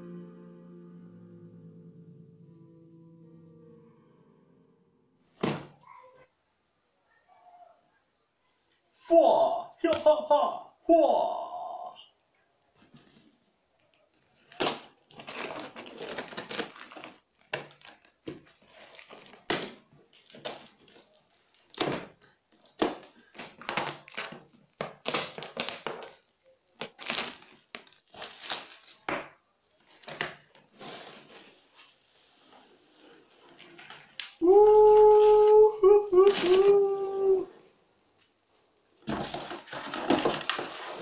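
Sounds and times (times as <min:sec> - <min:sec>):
plastic wrap crinkling: 0:13.9 - 0:32.4, 0:33.0 - 0:37.4
knife cutting plastic wrap: 0:14.4 - 0:29.3.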